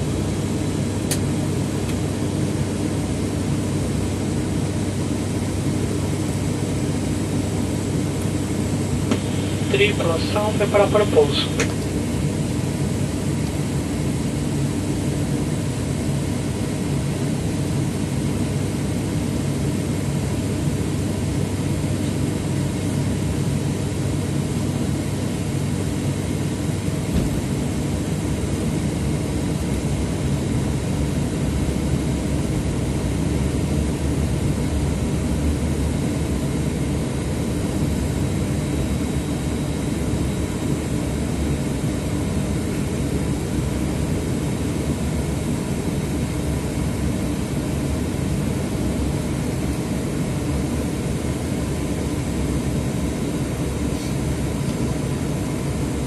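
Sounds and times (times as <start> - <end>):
turboprop engine cabin drone: 0.0 - 56.0
faint high whine: 8.9 - 11.9.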